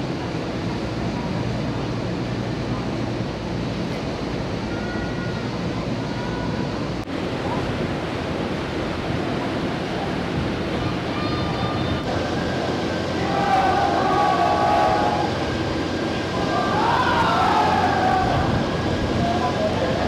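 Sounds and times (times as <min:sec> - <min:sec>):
wind buffeting microphone: 0:06.9 - 0:20.0
sea water rushing: 0:07.1 - 0:20.0.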